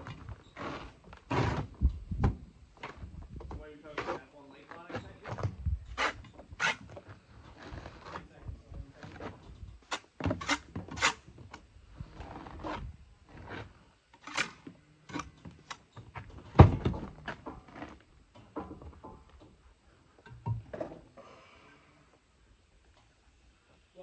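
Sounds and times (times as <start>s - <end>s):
trowel scraping mortar: 9.8s - 11.3s.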